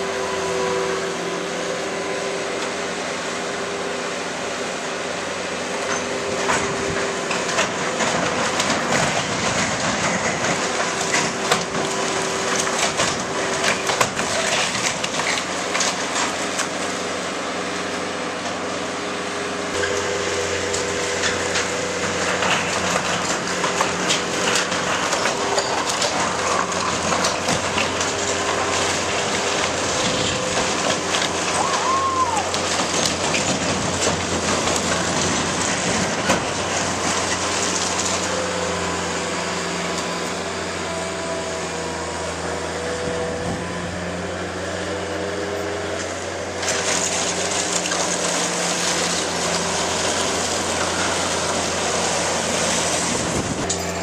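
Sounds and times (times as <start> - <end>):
diesel loader engine running: 0.0 - 54.0
sheet metal and timber crunching: 5.8 - 17.0, 19.8 - 39.1.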